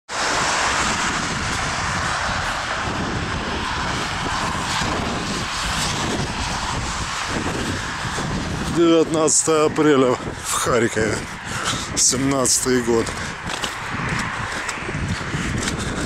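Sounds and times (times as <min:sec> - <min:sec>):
low rumble: 0:00.1 - 0:08.8
loud rushing noise: 0:00.1 - 0:16.0.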